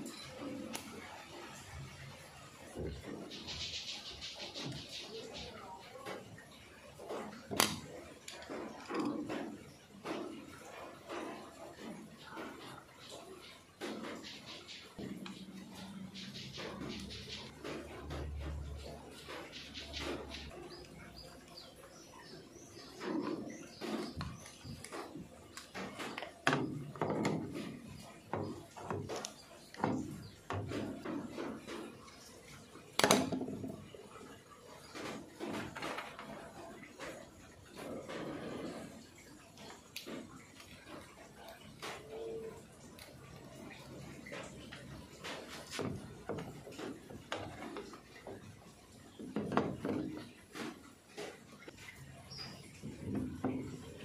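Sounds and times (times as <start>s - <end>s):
plastic clicks and knocks: 7.1s - 10.6s, 32.9s - 33.8s, 49.2s - 51.4s.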